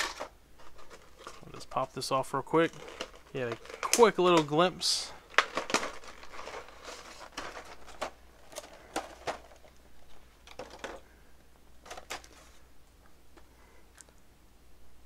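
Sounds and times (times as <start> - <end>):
plastic crinkling: 0.0 - 11.2.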